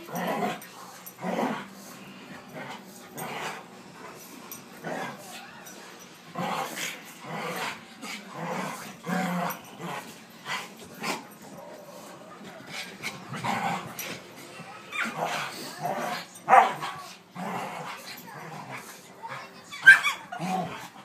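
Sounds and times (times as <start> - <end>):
dogs growling and barking: 0.0 - 21.0.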